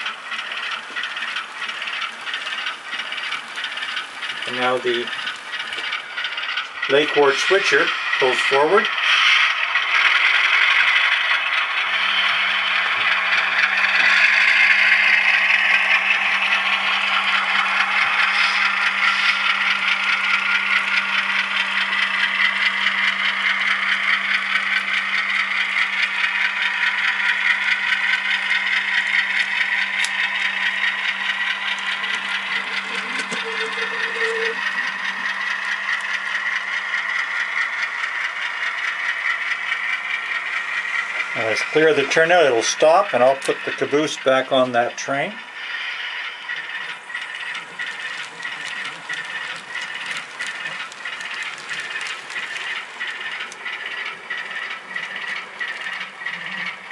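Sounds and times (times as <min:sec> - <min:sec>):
model train wheels rattling: 0:00.0 - 0:56.9
steady low hum: 0:00.0 - 0:56.9.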